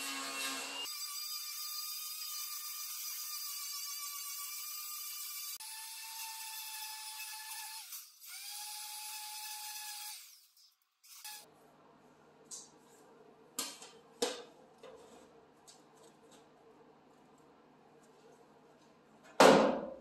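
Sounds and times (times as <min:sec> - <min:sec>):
orbital sander on steel: 0:00.0 - 0:05.8.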